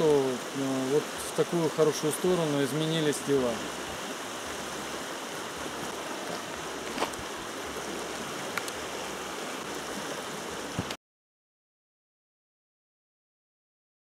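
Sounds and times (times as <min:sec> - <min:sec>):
river rushing over rapids: 0:00.0 - 0:11.0.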